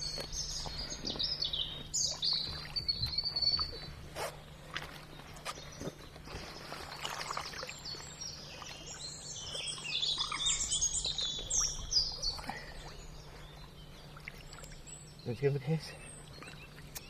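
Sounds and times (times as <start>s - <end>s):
birds chirping and trilling: 0.0s - 17.0s
water splashing lightly: 6.3s - 14.9s.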